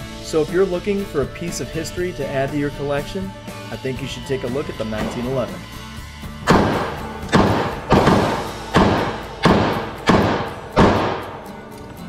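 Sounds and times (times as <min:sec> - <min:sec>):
pistol shots indoors: 0:06.5 - 0:11.5.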